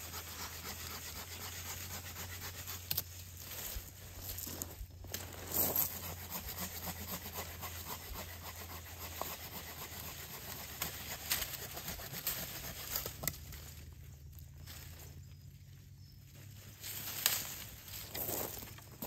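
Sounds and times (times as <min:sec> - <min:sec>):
saw rasping through branch: 0:00.0 - 0:03.6, 0:05.7 - 0:13.6.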